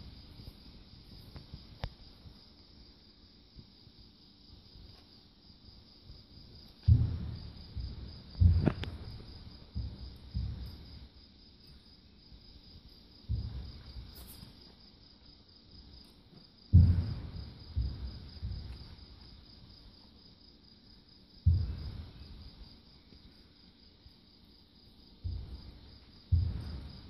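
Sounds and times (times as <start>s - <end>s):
dull low thumps: 6.8s - 11.1s, 13.2s - 14.1s, 16.7s - 19.2s, 21.4s - 22.6s, 25.2s - 27.0s.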